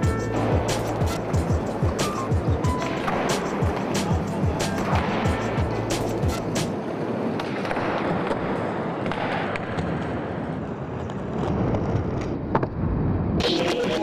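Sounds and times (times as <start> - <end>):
skateboard clack: 0.0 - 12.8
skateboard wheels rolling: 0.0 - 14.0.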